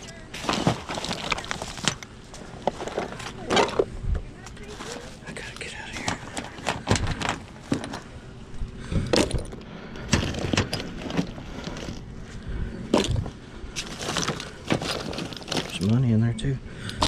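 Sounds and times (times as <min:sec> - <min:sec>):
shotgun shells rattling and clinking: 0:00.0 - 0:03.9, 0:09.0 - 0:12.1, 0:12.9 - 0:16.2.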